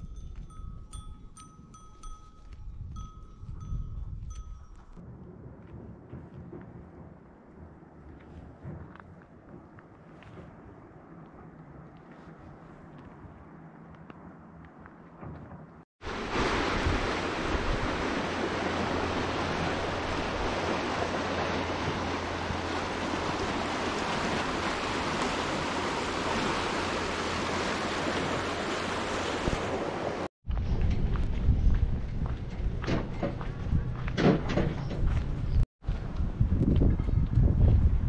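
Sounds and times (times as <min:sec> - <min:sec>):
outdoor ambience: 0:00.0 - 0:38.0
river rushing over rapids: 0:16.0 - 0:30.3.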